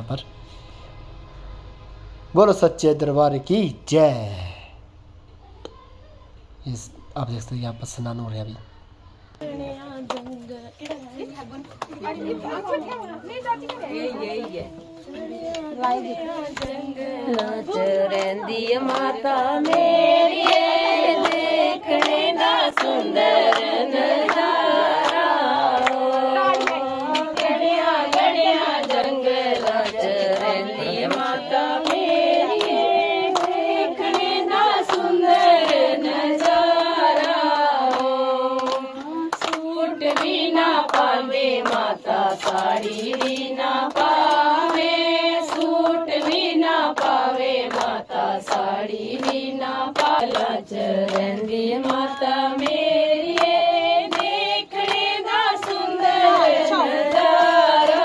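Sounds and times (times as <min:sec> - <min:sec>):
voices singing devotional song: 0:06.7 - 0:58.0
hand clapping: 0:10.1 - 0:11.0, 0:15.4 - 0:58.0.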